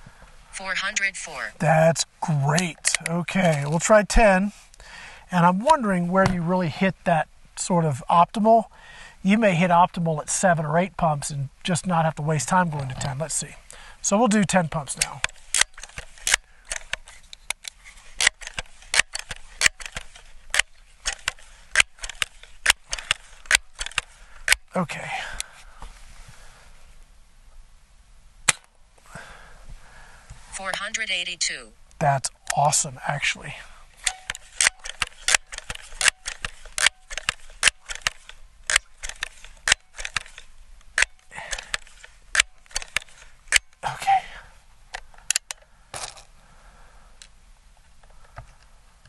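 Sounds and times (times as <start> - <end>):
air pistol pump clacking: 15.0 - 24.6, 34.0 - 40.4, 41.0 - 43.8.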